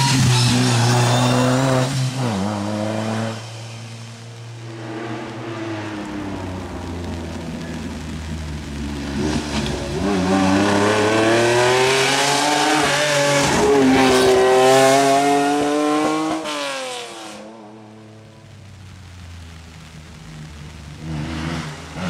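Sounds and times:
rally car passing at speed: 0.4s - 8.1s, 8.7s - 18.3s.

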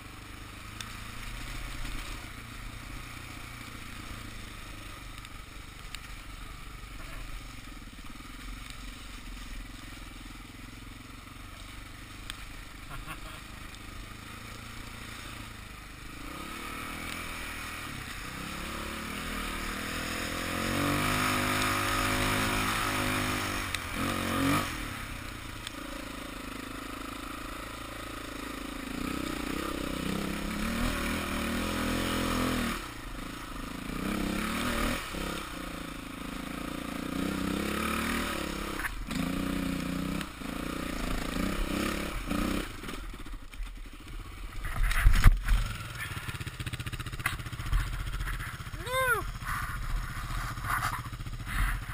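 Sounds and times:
dirt bike engine revving: 11.9s - 51.9s.

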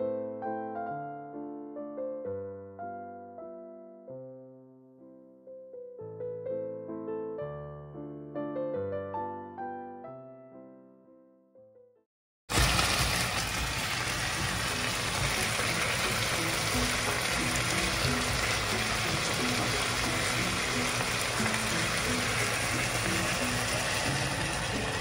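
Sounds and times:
onions and chicken frying: 12.5s - 25.0s
electric piano notes: 14.4s - 25.0s.

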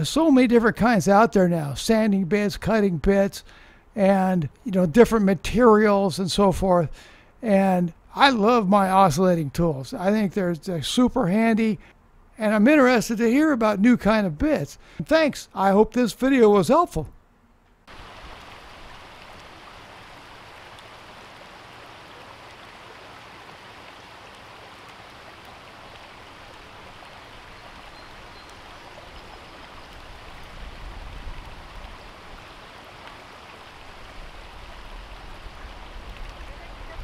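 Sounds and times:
stream running over rocks: 17.9s - 37.0s.

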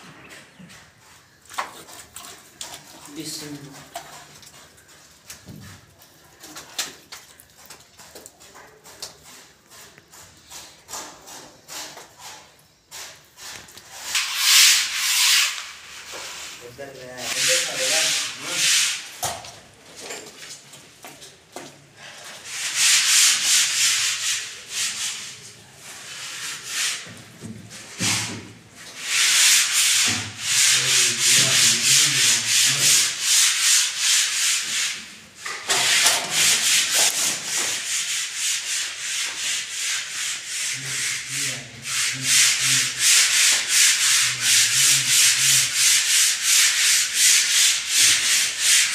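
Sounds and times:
sandpaper rasping on board: 8.8s - 19.1s, 22.5s - 27.1s, 29.0s - 48.9s.

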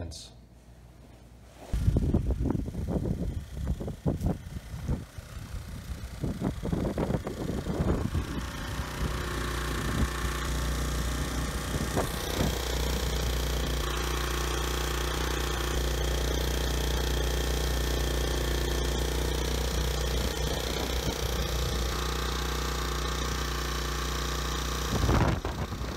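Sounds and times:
generator engine humming: 1.8s - 25.9s.

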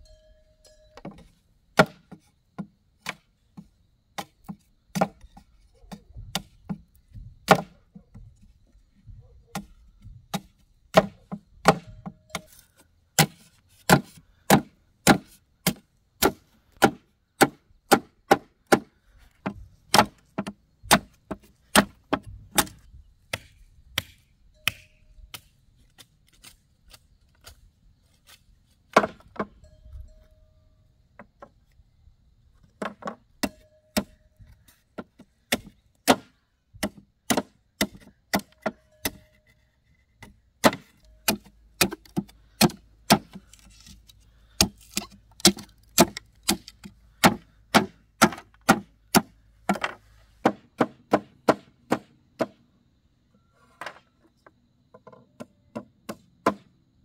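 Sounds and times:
blade chopping wood: 1.8s - 6.8s, 7.4s - 7.8s, 9.5s - 12.6s, 13.2s - 27.6s, 28.3s - 29.5s, 35.0s - 39.4s, 40.2s - 52.6s, 56.1s - 56.7s.

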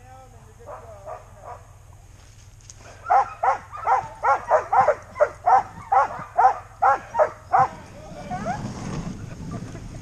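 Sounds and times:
steady low rumble: 0.0s - 10.0s
dog barking: 0.7s - 1.7s, 3.0s - 8.6s.

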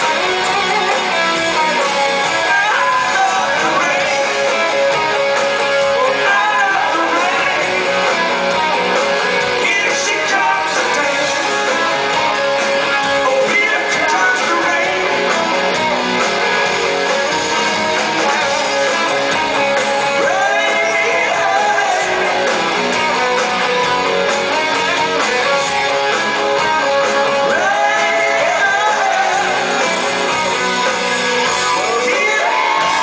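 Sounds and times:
rock band playing live: 0.0s - 33.0s
person singing: 2.2s - 15.8s, 20.0s - 23.5s, 26.6s - 33.0s.

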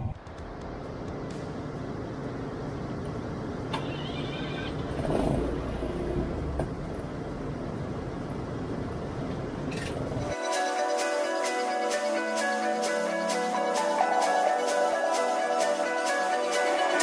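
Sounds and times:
low outdoor rumble: 0.0s - 10.3s.

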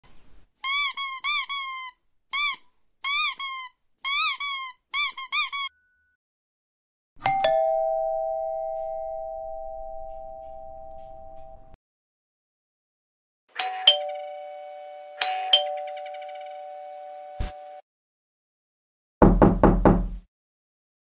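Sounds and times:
squeaky dog toy squeaking: 0.6s - 5.8s
doorbell chime ringing: 7.2s - 11.8s, 13.6s - 17.8s.

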